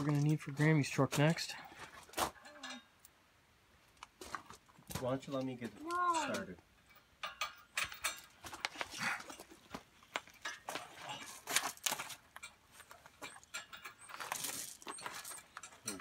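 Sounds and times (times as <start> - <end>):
hardware clicking and knocking: 6.2 - 16.0
person shifting on gravel: 8.3 - 16.0.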